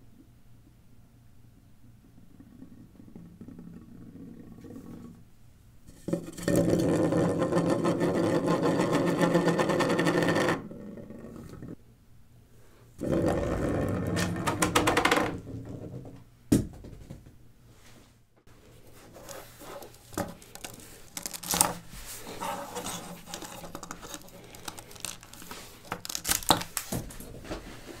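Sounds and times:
plastic wheels rattling on table: 6.0s - 10.7s, 19.1s - 27.2s.

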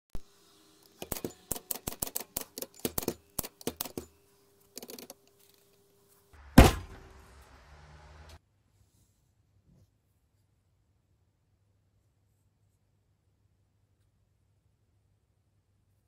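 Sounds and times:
typewriter rattle: 1.0s - 4.0s
loud thump: 6.5s - 7.2s.

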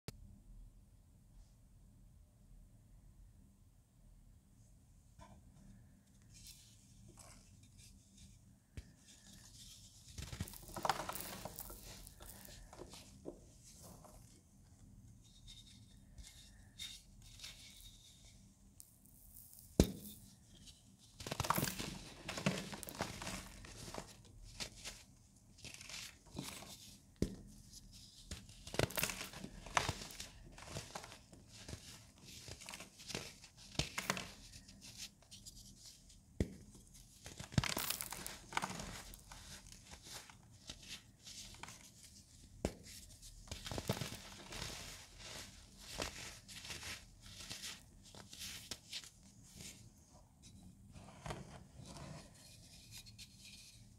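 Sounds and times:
baking soda crunching and crumbling: 10.2s - 12.9s, 37.3s - 40.2s.

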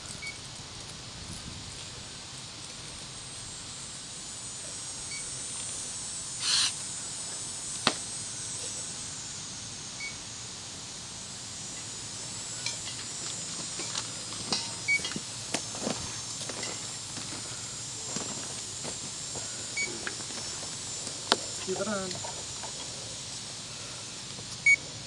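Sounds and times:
high insect buzz: 2.3s - 25.0s
short air hiss: 4.3s - 14.2s.

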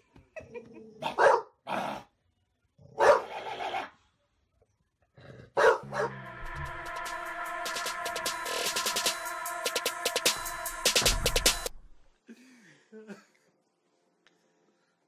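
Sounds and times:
dog barking: 1.0s - 1.8s, 3.0s - 3.4s, 5.6s - 6.2s
electronic music: 5.9s - 12.0s.

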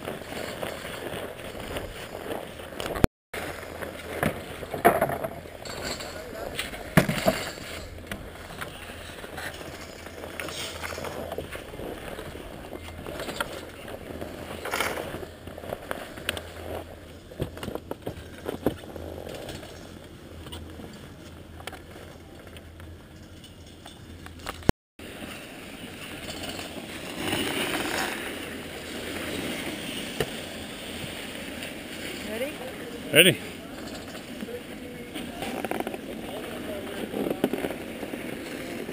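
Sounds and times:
gear rustling against snow: 0.0s - 4.7s.

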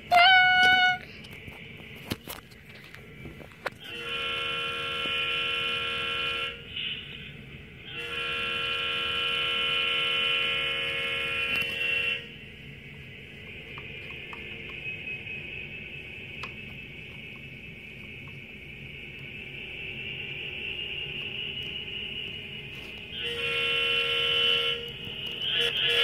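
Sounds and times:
model locomotive horn blasts: 0.0s - 1.0s, 3.8s - 6.7s, 7.9s - 12.4s, 20.6s - 26.0s.

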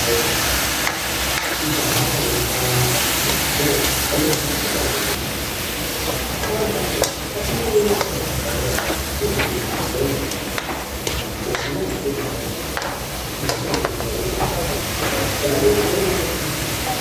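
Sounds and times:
squid sizzling in a wok: 0.0s - 11.7s
spatula scraping metal pan: 6.9s - 14.5s.

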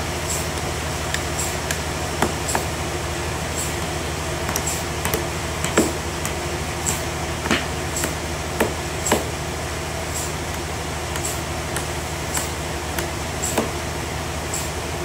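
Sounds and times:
sawmill machinery hum: 0.0s - 15.0s
hammer knocking wooden wedge: 0.6s - 2.7s, 4.5s - 9.4s, 10.5s - 13.8s.

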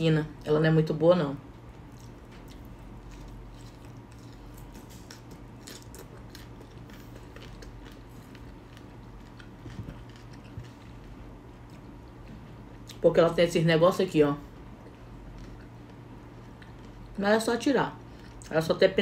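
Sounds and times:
steady low hum: 0.0s - 19.0s
person chewing crunchy food: 1.4s - 13.0s, 14.6s - 17.2s, 18.0s - 18.5s.

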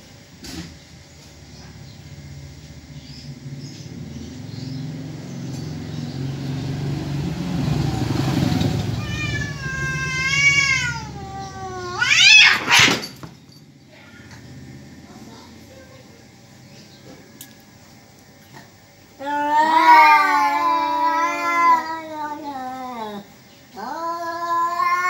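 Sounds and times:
cat growling: 8.6s - 13.1s, 19.2s - 25.0s
cat yowling: 8.8s - 13.2s, 19.2s - 25.0s
cat screeching: 8.9s - 13.2s, 19.2s - 23.2s, 23.8s - 25.0s.

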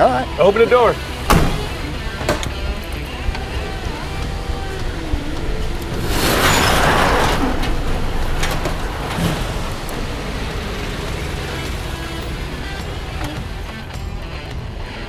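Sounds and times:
car engine idling: 0.0s - 15.0s
loud rushing noise: 3.4s - 12.9s.

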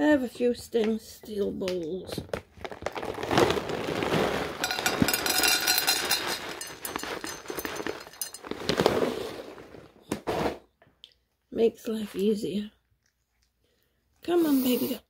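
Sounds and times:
rustling and crinkling: 0.4s - 10.9s.

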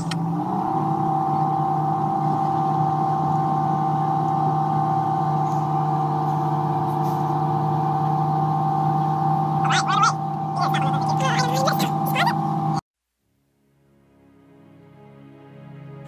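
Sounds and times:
high engine whine: 0.0s - 16.0s
ship engine low drone: 0.0s - 16.0s.

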